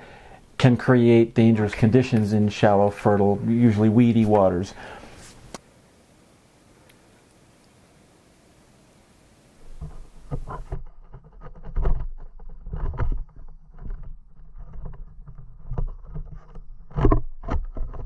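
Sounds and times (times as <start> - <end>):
faint hiss: 0.0 - 10.3.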